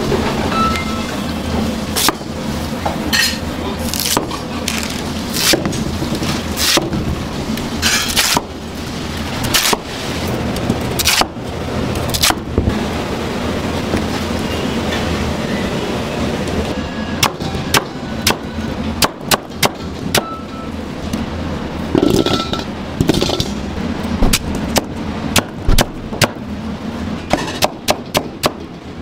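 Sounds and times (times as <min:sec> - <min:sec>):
steady low hum: 0:00.0 - 0:29.0
knife crunching through radish: 0:03.8 - 0:05.7.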